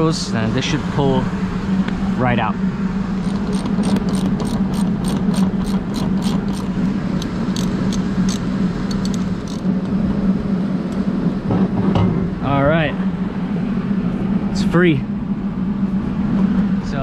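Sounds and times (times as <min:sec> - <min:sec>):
low machinery hum: 0:00.0 - 0:17.0
socket ratchet clicking: 0:03.2 - 0:10.0.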